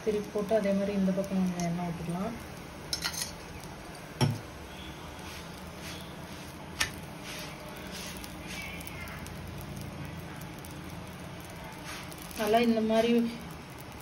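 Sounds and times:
faint hiss: 0:00.0 - 0:14.0
knock: 0:04.2 - 0:04.4.

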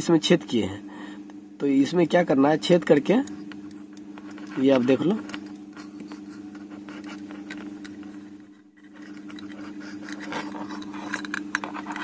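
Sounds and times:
steady low hum: 0:00.0 - 0:12.0
plastic casing scratching and clicking: 0:08.7 - 0:12.0.

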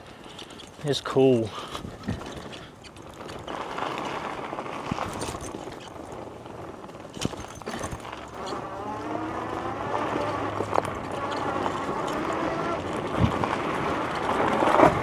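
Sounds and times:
wind and tyre noise: 0:00.0 - 0:15.0
knocks and rattles over bumps: 0:06.8 - 0:15.0
motor whine rising in pitch: 0:08.4 - 0:12.9.

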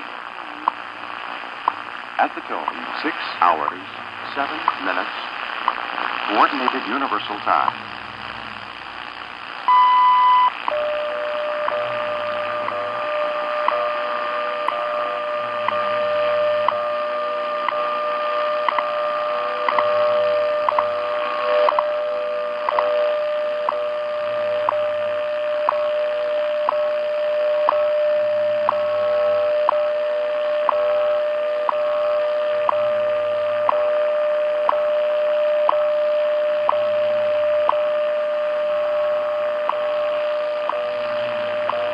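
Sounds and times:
static hiss: 0:00.0 - 0:41.9
steady radio tone: 0:00.0 - 0:41.9
ticks: 0:01.6 - 0:01.8, 0:04.6 - 0:04.9, 0:05.6 - 0:05.8.

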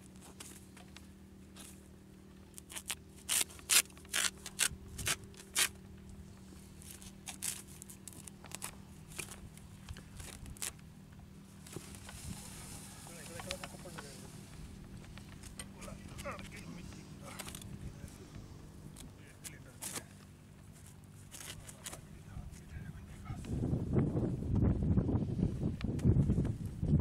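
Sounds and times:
sickle cutting grass: 0:00.0 - 0:01.9, 0:02.5 - 0:10.8, 0:11.4 - 0:22.7
steady low hum: 0:00.0 - 0:27.0.

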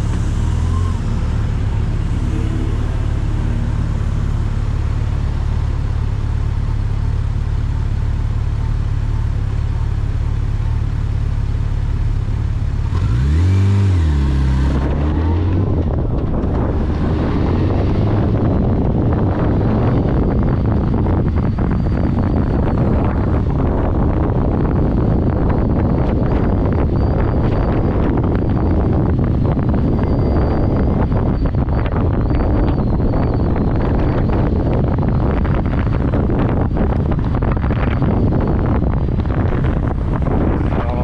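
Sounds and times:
road noise: 0:00.0 - 0:41.0
vehicle engine drone: 0:00.0 - 0:41.0
wind buffeting: 0:14.5 - 0:41.0.

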